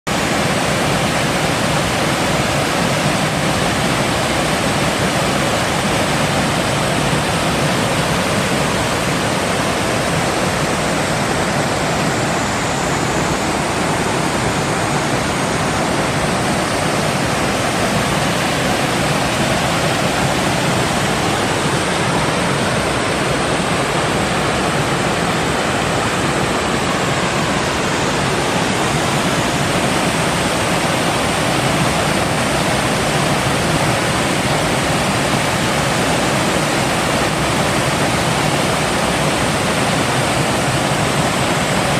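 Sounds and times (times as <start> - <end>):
stream running over rocks: 0.1 - 41.9
waterfall pouring into pool: 0.1 - 41.9.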